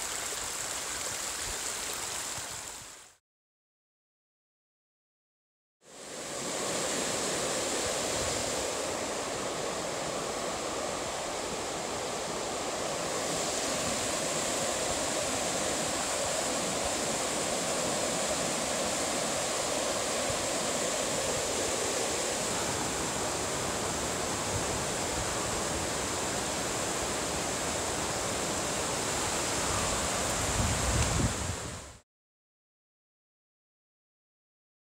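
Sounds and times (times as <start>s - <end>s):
creek rushing over rocks: 0.0s - 3.2s, 6.0s - 32.0s.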